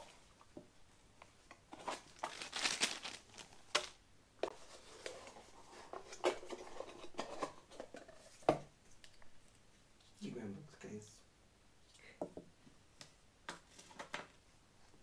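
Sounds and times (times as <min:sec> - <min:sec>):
plastic packaging crinkling: 0:01.8 - 0:04.0.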